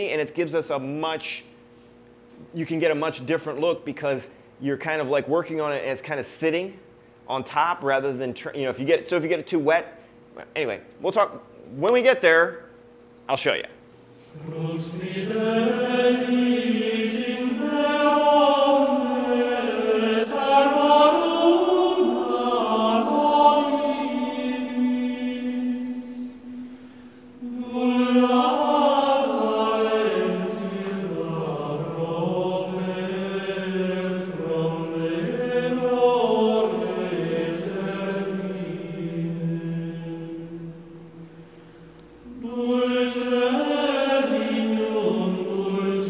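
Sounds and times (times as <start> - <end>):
unaccompanied chant: 14.1 - 46.0.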